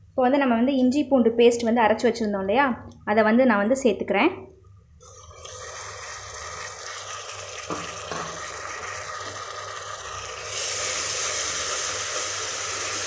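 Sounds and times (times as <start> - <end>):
paste sizzling in hot oil: 5.1 - 13.0.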